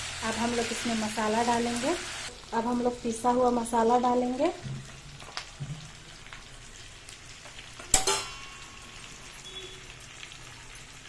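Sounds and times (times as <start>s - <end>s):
chicken sizzling in a pan: 0.0s - 11.0s
metal jar clanking on pan: 7.8s - 9.0s.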